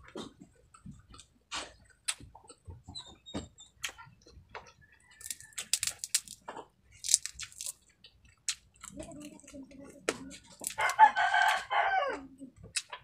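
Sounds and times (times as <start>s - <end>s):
fried crabs cracking and crunching: 5.1s - 11.8s.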